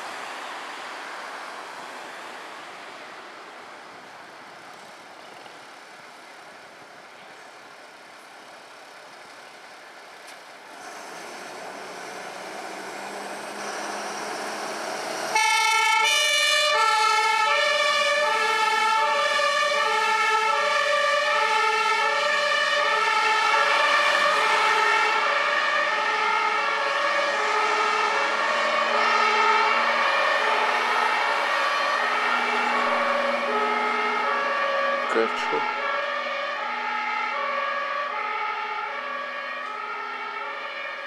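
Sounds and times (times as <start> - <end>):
fire engine engine: 0.0 - 41.0
two-tone siren: 15.3 - 41.0.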